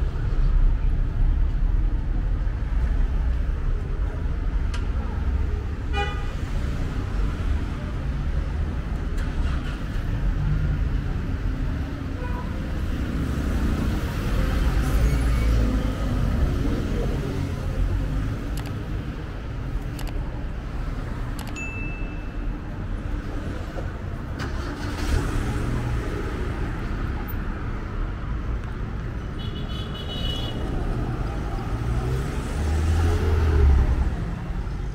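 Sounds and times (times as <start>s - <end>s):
cars driving past: 22.6s - 34.9s.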